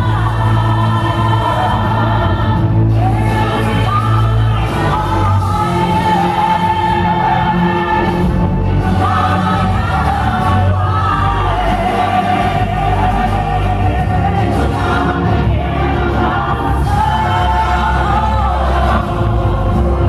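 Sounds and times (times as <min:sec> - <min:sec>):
choir singing held notes: 0:00.0 - 0:20.0
steady bass line: 0:00.0 - 0:20.0.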